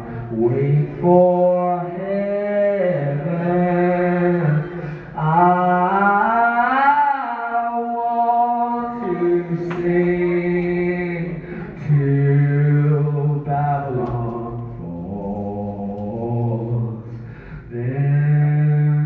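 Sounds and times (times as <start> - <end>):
person singing a cappella: 0.0 - 19.0.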